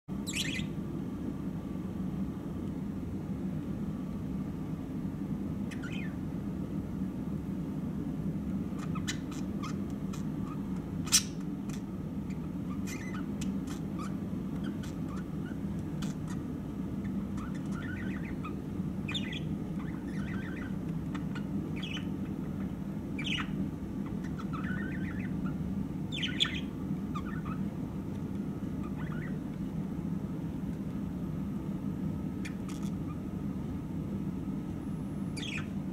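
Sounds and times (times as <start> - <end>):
steady low hum: 0.1 - 35.9
budgerigars chirping and squawking: 0.2 - 0.8, 5.6 - 6.2, 8.7 - 27.7, 28.7 - 29.5, 32.4 - 33.2, 35.3 - 35.9.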